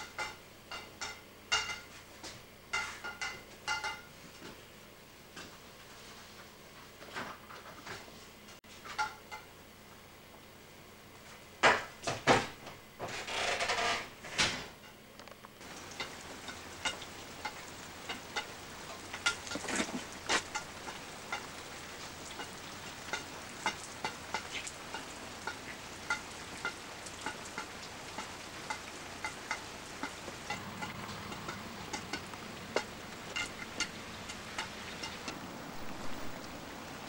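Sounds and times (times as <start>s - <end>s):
steady hiss: 15.5s - 37.0s.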